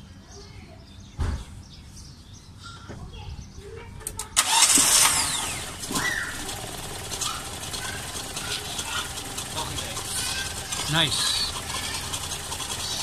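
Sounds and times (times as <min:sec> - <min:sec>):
car engine cranking and starting: 0:04.1 - 0:13.0.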